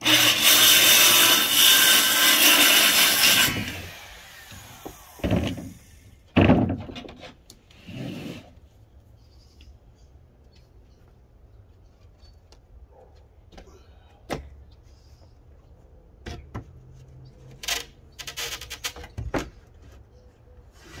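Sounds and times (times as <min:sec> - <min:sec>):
board clattering against studs: 0:04.8 - 0:07.4.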